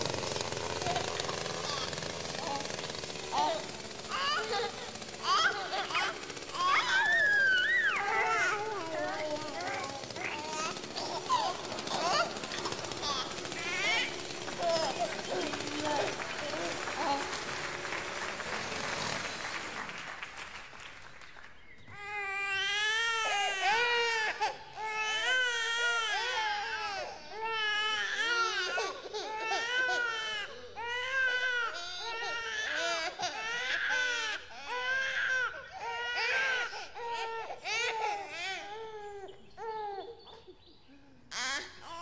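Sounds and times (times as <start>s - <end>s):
baby crying: 0.8s - 17.4s, 22.0s - 40.2s.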